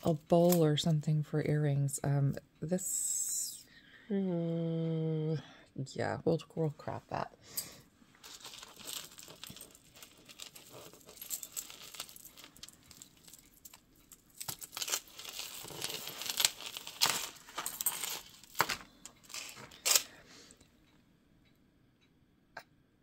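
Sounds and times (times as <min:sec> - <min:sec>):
metal jewelry chains clinking: 0:08.2 - 0:20.1.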